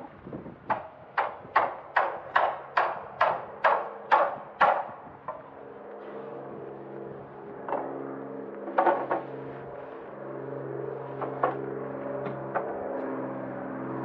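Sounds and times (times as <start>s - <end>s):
steady low hum: 0.0s - 14.0s
hammer blows on timber: 0.6s - 5.4s.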